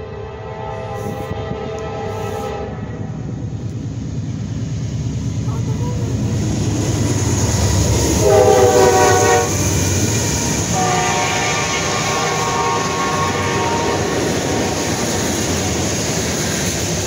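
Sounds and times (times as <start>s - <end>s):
train air horn blast: 0.0s - 3.2s, 8.1s - 9.7s, 10.6s - 14.4s
diesel locomotives rumbling past: 0.0s - 17.0s.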